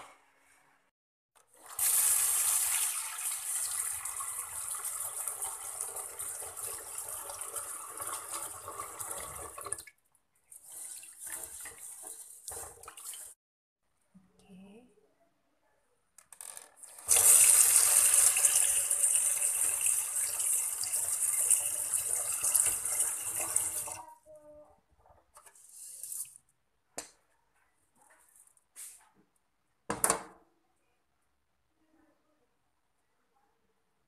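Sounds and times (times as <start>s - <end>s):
tap water pouring into pot: 1.6s - 10.0s, 17.0s - 24.0s.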